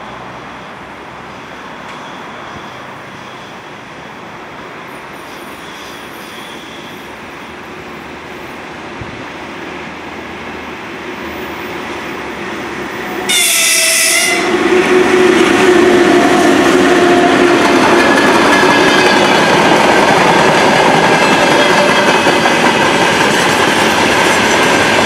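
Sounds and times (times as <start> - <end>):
train rumbling past: 0.0 - 25.0
train horn: 13.2 - 18.2.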